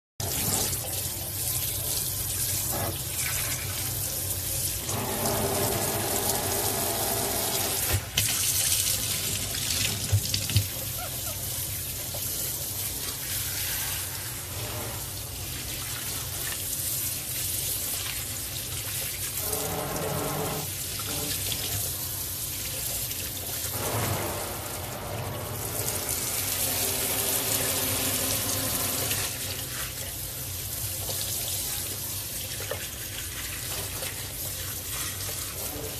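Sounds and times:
water spraying into sink: 0.2s - 1.1s, 2.4s - 30.1s.

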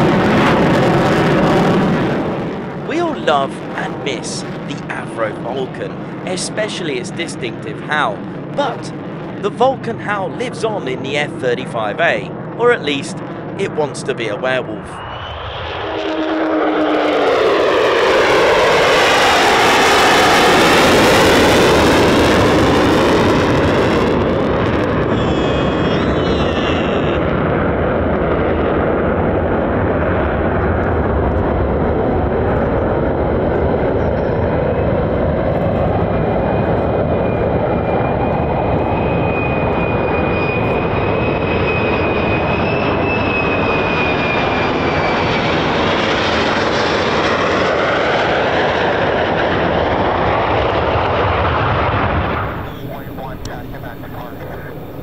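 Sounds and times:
jet engine roaring: 0.0s - 55.0s
thin high howl: 25.0s - 27.4s.

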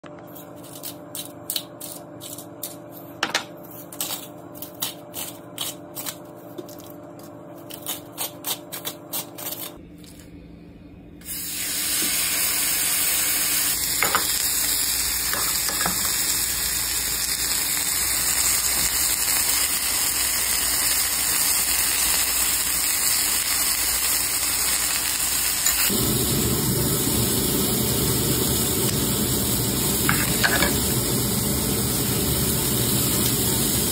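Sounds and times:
pepper mill grinding: 0.3s - 10.2s
meat sizzling on grill pan: 11.3s - 33.9s.

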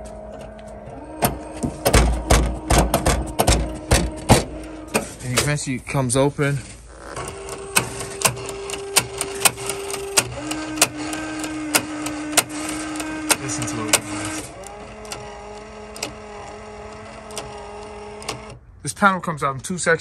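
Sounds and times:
latch actuator whirring: 0.0s - 5.6s, 6.9s - 18.6s
sharp actuator clicks: 7.2s - 16.3s.

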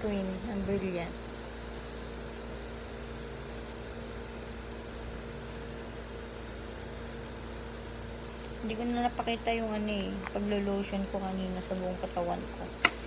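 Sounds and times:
appliance or fan humming: 0.0s - 13.0s.

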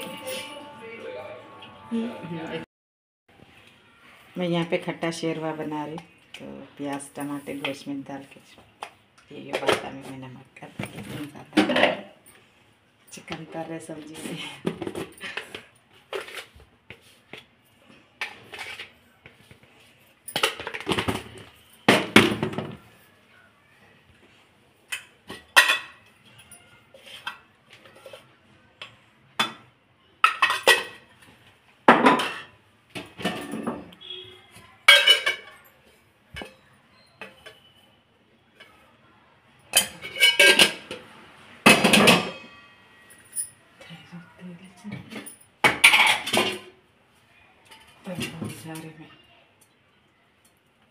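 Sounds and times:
utensils clinking on metal pot: 20.3s - 22.6s, 24.9s - 26.1s, 30.2s - 31.1s, 34.9s - 35.7s, 36.3s - 37.8s, 39.7s - 41.0s, 41.6s - 43.5s, 45.0s - 46.7s.

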